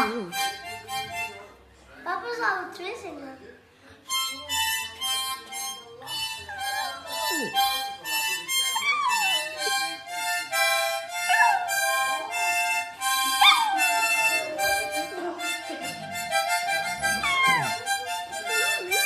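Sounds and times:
harmonica playing chords: 0.0 - 1.6, 4.0 - 19.0
dog howling: 17.1 - 17.8.

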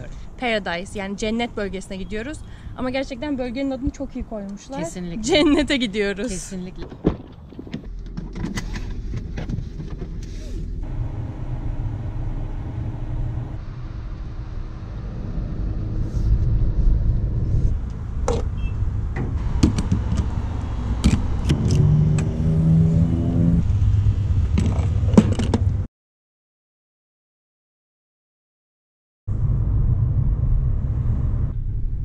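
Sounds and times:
car engine rumble: 1.0 - 25.9, 29.3 - 32.0
sharp clicks and knocks: 19.1 - 22.3.

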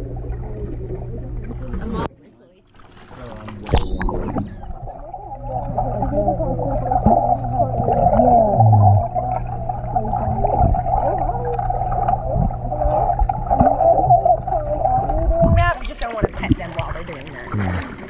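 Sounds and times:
steady low underwater hum: 0.0 - 18.0
underwater bubbling: 0.0 - 18.0
warbling squeaky tones: 3.2 - 5.3.

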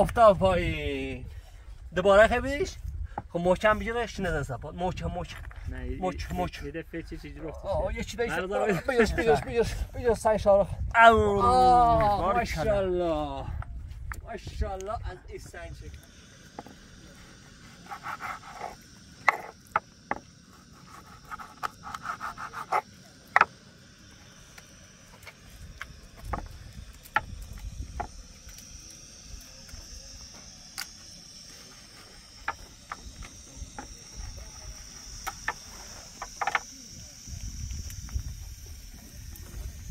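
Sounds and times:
insects chirring: 0.0 - 39.9
stone scraping: 16.6 - 23.6.

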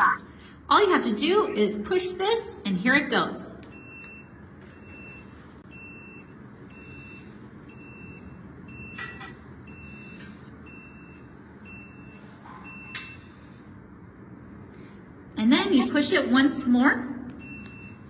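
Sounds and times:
high electronic warning beep: 3.7 - 13.6, 17.4 - 18.0.

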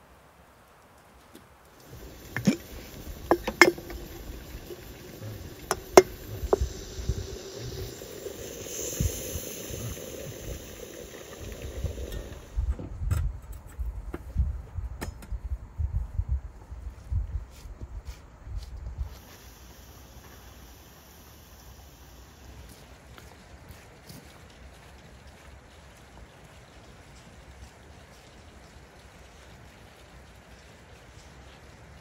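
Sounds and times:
hot water pouring into teapot: 1.8 - 12.7, 19.0 - 23.3
lid and glass clinking: 1.9 - 12.4.

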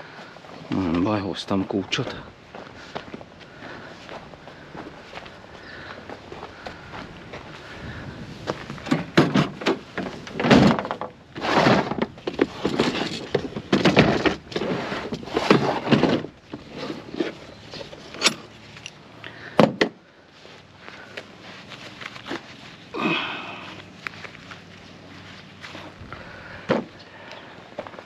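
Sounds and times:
wrench and steel parts clanking: 11.7 - 19.0.

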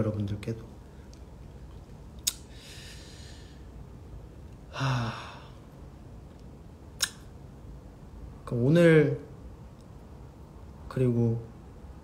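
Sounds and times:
man breathing out: 2.5 - 3.7, 4.7 - 5.7
short voiced sigh: 4.7 - 5.6.

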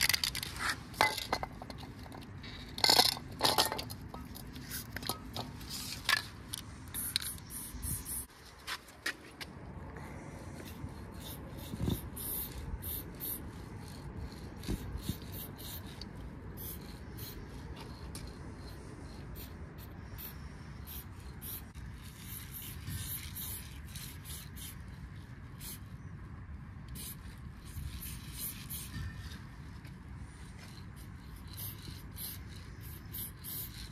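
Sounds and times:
spray paint can hissing: 6.7 - 8.3, 10.6 - 25.9, 26.9 - 29.4, 30.7 - 33.9.

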